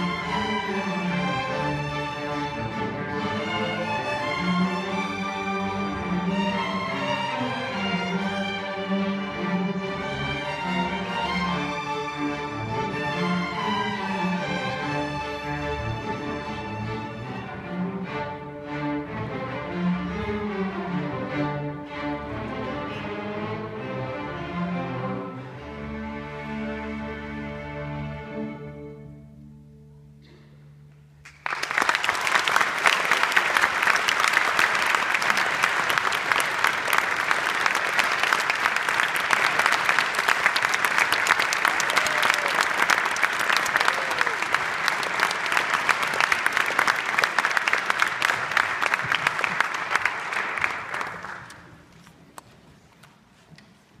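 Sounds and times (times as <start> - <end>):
audience applause: 31.2 - 51.9.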